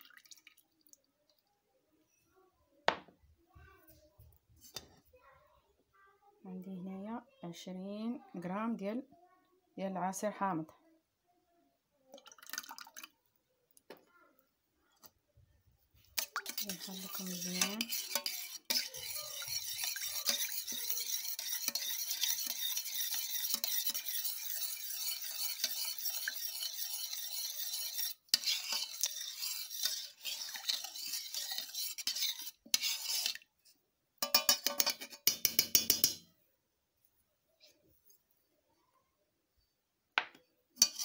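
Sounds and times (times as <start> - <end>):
utensil stirring in metal pot: 16.0 - 33.5, 34.2 - 36.3, 40.8 - 41.0.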